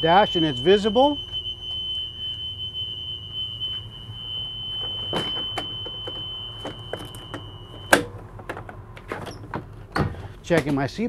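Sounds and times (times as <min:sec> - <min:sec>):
alarm buzzer high tone: 0:00.0 - 0:08.0.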